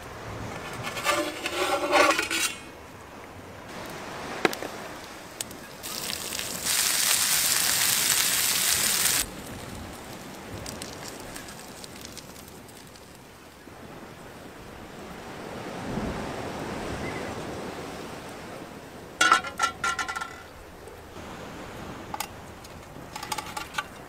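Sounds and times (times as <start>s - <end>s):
metal pan and plate clattering: 0.6s - 2.7s, 19.2s - 20.5s, 23.2s - 24.0s
fish sizzling in oil: 5.8s - 9.3s.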